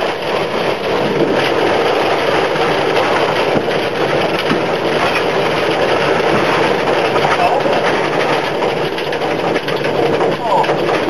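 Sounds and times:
steam locomotive noise: 0.0 - 11.0.

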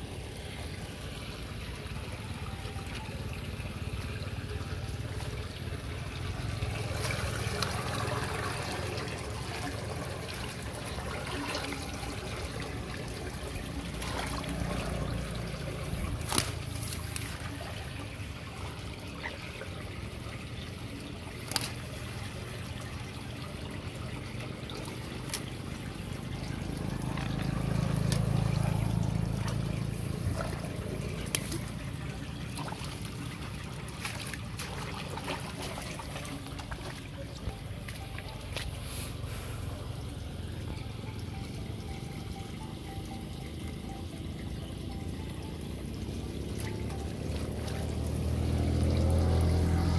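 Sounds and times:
water trickling through drain: 0.0 - 49.9.

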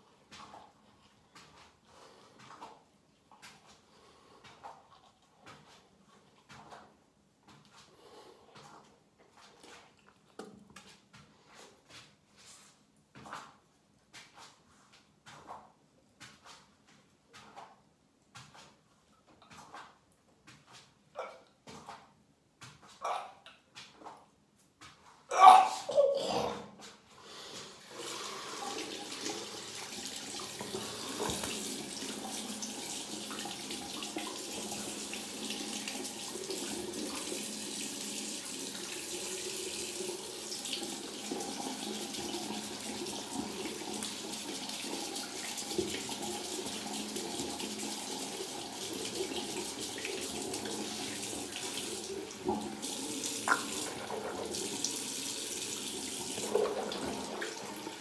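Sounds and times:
tap running into sink: 30.6 - 31.7.

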